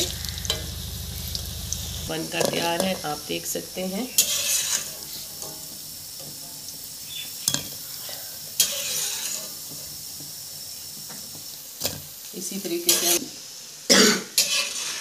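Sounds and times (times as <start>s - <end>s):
burst of hissing: 0.0s - 2.2s
food deep-frying in hot oil: 0.0s - 15.0s.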